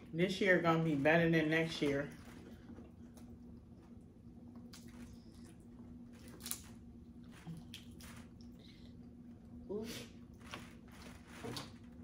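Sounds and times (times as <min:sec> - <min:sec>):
wet squishing: 0:01.7 - 0:09.2.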